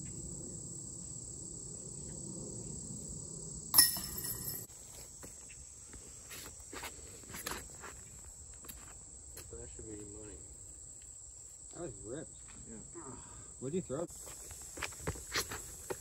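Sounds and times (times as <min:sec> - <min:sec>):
insects buzzing: 0:00.0 - 0:16.0
sharp clack with ring: 0:03.7 - 0:04.7.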